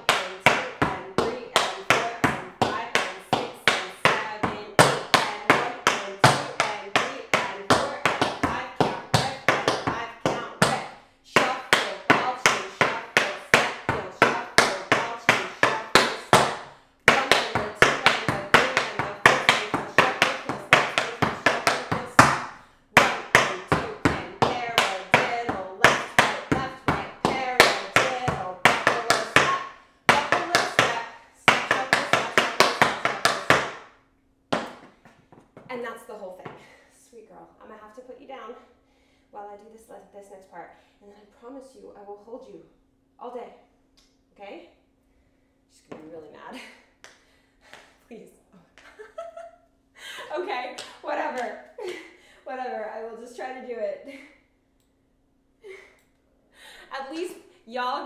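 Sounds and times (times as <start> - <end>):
tap shoes on wooden board: 0.1 - 10.8, 11.4 - 33.8, 34.5 - 35.8.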